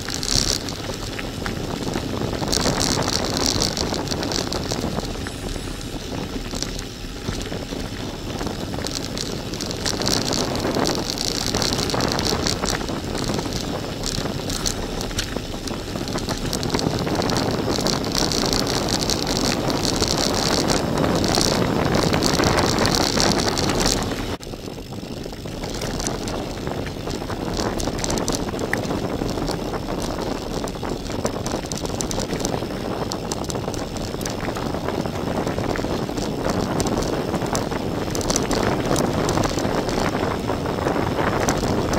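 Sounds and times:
bike rattling: 0:00.0 - 0:41.9
bike tyres crunching on gravel: 0:00.0 - 0:41.9
high hiss: 0:05.1 - 0:07.7.

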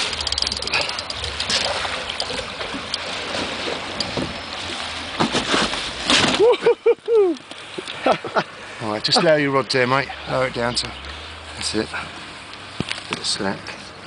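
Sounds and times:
water splashing and sloshing: 0:00.0 - 0:14.0.

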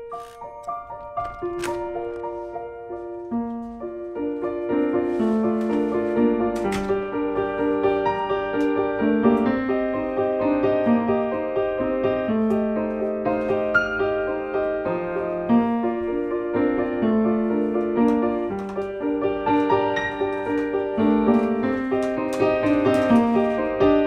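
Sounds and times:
piano music: 0:00.0 - 0:24.0.

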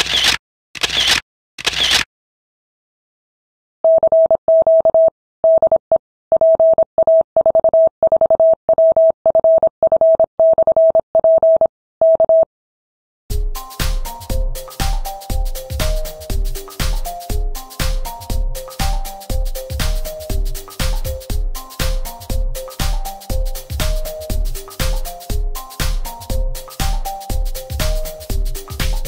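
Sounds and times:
electronic music: 0:13.3 - 0:29.0.

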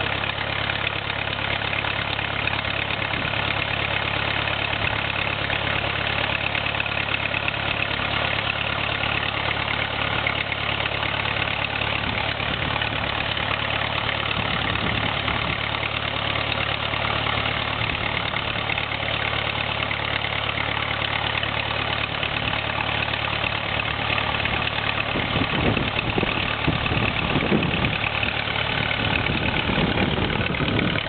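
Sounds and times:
engine idling: 0:00.0 - 0:31.0.

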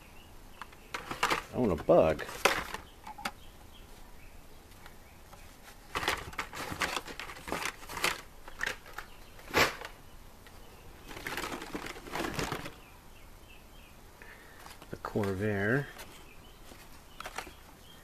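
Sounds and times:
plastic and card rustling and clacking: 0:00.6 - 0:03.4, 0:04.7 - 0:12.8, 0:14.6 - 0:17.7.

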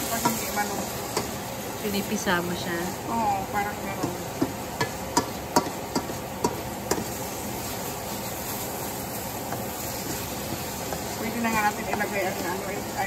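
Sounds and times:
food sizzling hiss: 0:00.0 - 0:13.0
spatula tapping metal pan: 0:00.1 - 0:01.4, 0:03.9 - 0:07.2, 0:09.4 - 0:13.0.

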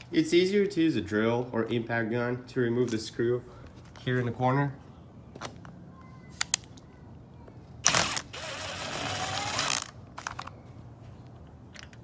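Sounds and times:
impact driver hammering: 0:07.8 - 0:09.9.

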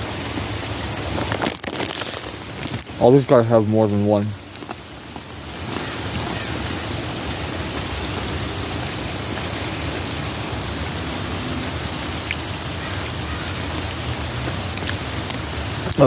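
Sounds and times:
steady rain hiss: 0:00.0 - 0:16.0.

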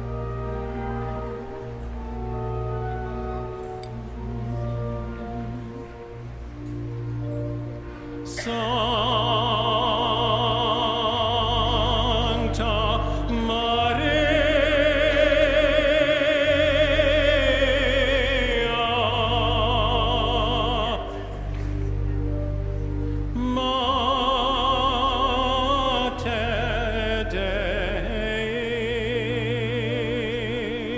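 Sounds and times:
sustained organ accompaniment: 0:00.0 - 0:30.9
person singing with vibrato: 0:08.2 - 0:22.2, 0:23.2 - 0:30.9.

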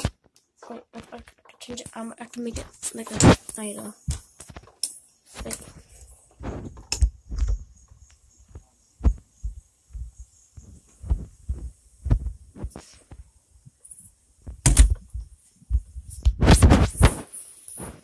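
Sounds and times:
low thumps and bumps: 0:09.0 - 0:12.7.

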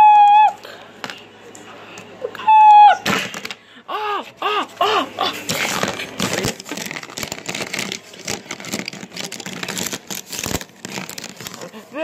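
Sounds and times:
plastic toy figures clicking on paper: 0:05.5 - 0:11.7.

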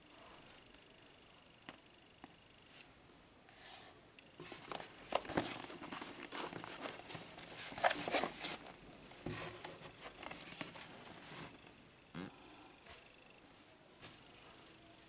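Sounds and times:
cardboard box being handled: 0:04.4 - 0:11.5.

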